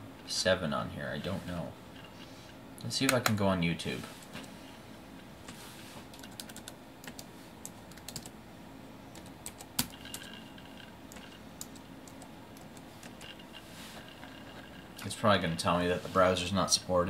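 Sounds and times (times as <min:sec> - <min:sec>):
laptop keyboard typing: 0:03.1 - 0:03.4, 0:06.1 - 0:08.3, 0:09.1 - 0:13.5.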